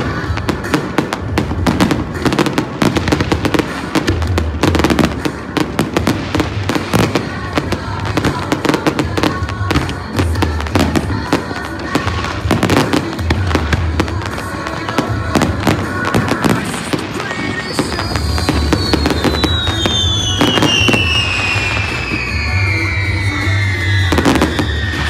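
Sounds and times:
fireworks bangs and crackling: 0:00.0 - 0:25.0
long falling whistle: 0:17.6 - 0:25.0.

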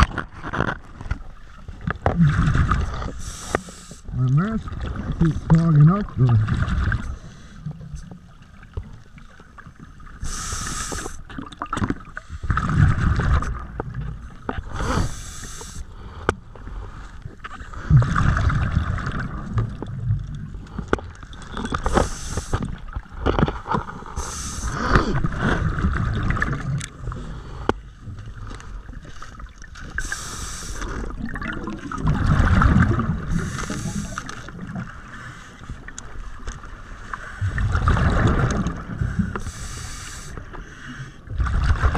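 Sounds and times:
exhaled bubbles rumbling: 0:00.0 - 0:03.4, 0:04.1 - 0:15.2, 0:16.1 - 0:35.2, 0:36.7 - 0:39.5, 0:41.3 - 0:41.9
diver breathing through regulator: 0:10.2 - 0:11.2, 0:14.6 - 0:18.2, 0:21.8 - 0:22.8, 0:24.0 - 0:25.8, 0:30.0 - 0:31.3, 0:33.2 - 0:35.8, 0:38.9 - 0:41.3.

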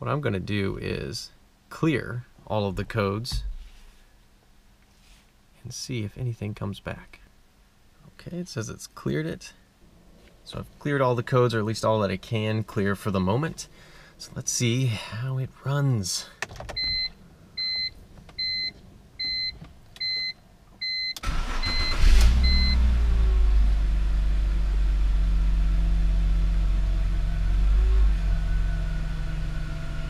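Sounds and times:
dashboard warning chime beeping: 0:16.8 - 0:22.9
car engine starting and idling: 0:21.1 - 0:30.0.

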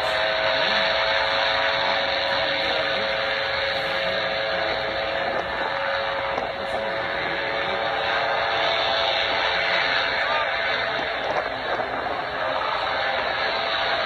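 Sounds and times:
airboat engine and propeller drone: 0:00.0 - 0:14.0.

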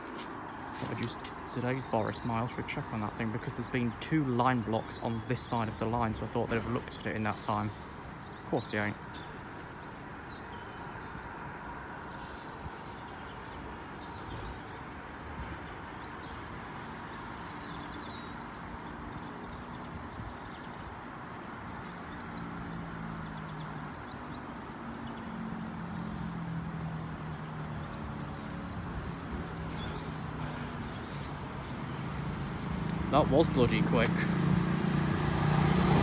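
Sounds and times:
road traffic hum: 0:00.0 - 0:36.0.

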